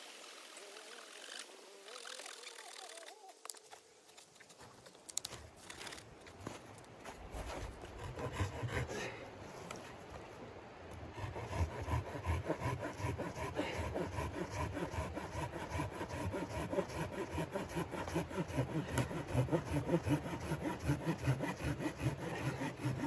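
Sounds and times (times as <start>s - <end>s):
hand saw cutting wood: 7.4s - 9.1s, 11.2s - 23.0s.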